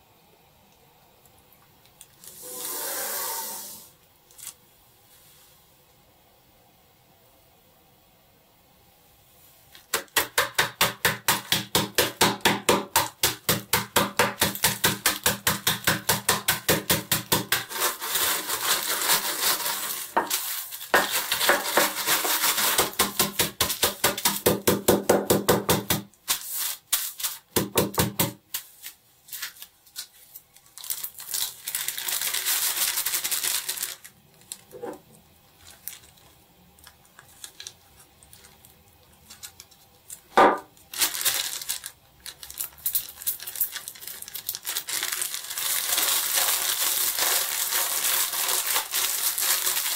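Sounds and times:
cookies crushed in a bag: 0:09.7 - 0:28.6, 0:29.3 - 0:49.9.

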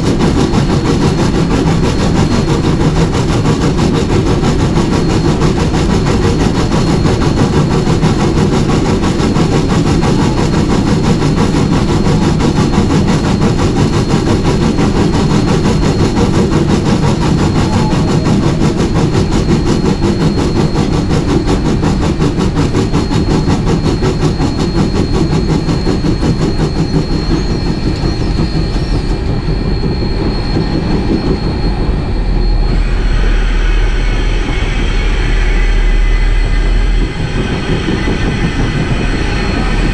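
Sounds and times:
deep low rumble: 0:00.0 - 0:39.9
steam locomotive running: 0:00.0 - 0:39.9.

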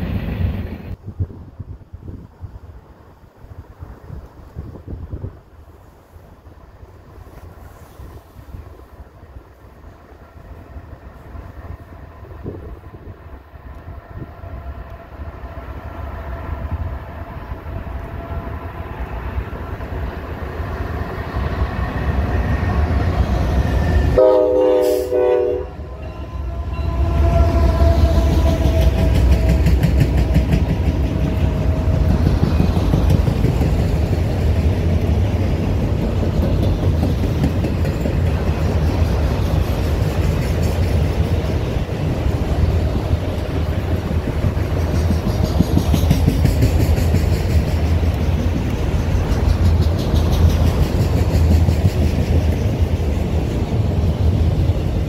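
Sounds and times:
freight train rumble: 0:00.0 - 0:55.0
train horn blast: 0:23.7 - 0:32.3
wheels clattering on rail: 0:25.9 - 0:55.0.

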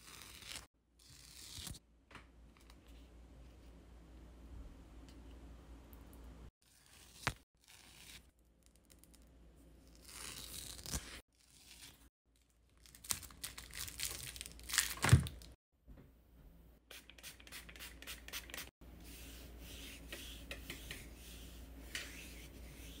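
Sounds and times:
wax spread with wooden spatula: 0:18.9 - 0:23.0.

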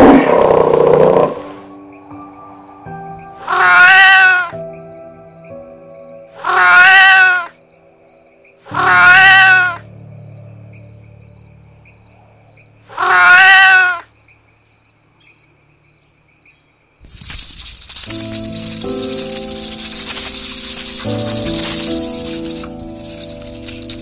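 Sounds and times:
cat meowing: 0:03.5 - 0:04.6, 0:06.4 - 0:07.6, 0:08.7 - 0:09.8, 0:12.9 - 0:14.1
noisy rattling: 0:17.0 - 0:24.0.

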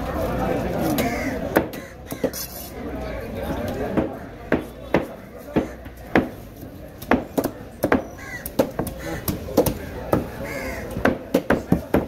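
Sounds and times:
crows cawing: 0:01.0 - 0:02.5, 0:08.0 - 0:09.4, 0:10.3 - 0:11.1.

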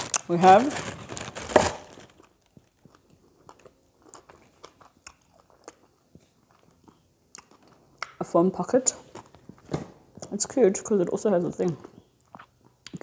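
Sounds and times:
tissue paper rustling: 0:00.0 - 0:02.1.

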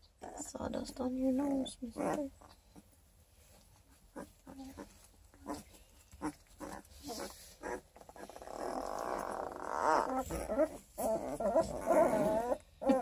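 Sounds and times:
rustling in wood shavings: 0:00.7 - 0:13.0
puppies squeaking: 0:03.8 - 0:13.0
puppy crying: 0:06.2 - 0:13.0.

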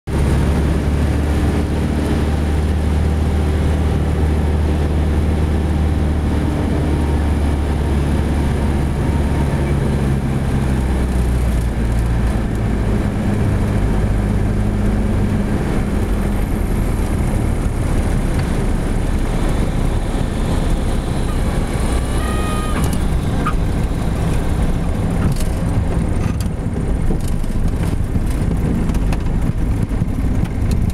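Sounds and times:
airplane engine and propeller droning: 0:00.1 - 0:30.9
brief high squeal: 0:21.2 - 0:23.6.

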